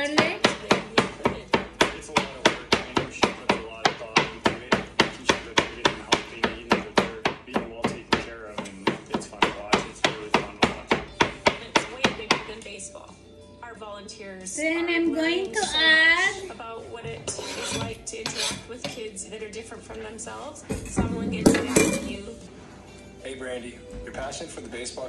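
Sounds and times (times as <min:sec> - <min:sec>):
knife chopping on cutting board: 0:00.1 - 0:12.5.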